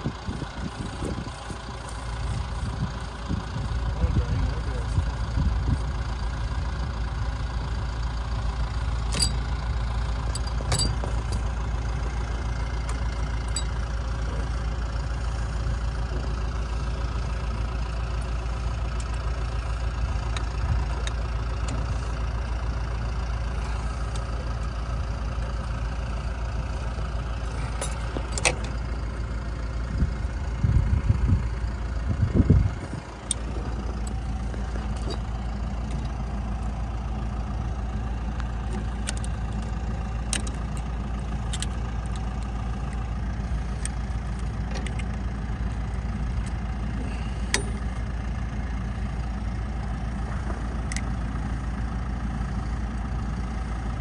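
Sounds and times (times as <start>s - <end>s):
tractor engine idling: 0.0s - 54.0s
sharp metal clicks: 9.0s - 9.6s, 10.2s - 11.6s, 38.8s - 42.5s.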